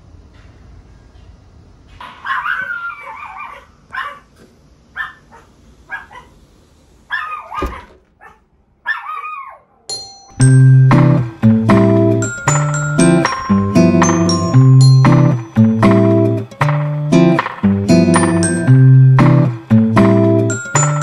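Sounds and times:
small dog yipping: 2.2 - 4.3, 5.0 - 6.4, 7.1 - 9.9.

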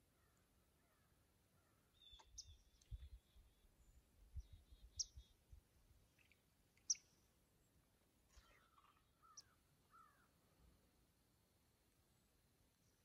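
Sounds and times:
wild bird calls: 8.3 - 10.5.

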